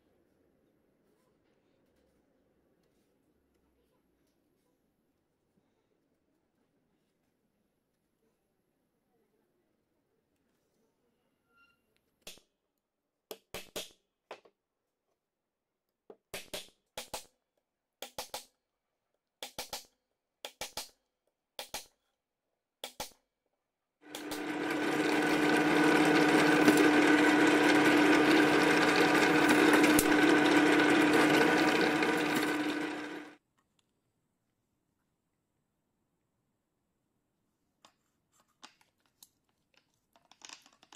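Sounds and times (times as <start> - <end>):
drill press humming: 24.1 - 33.4.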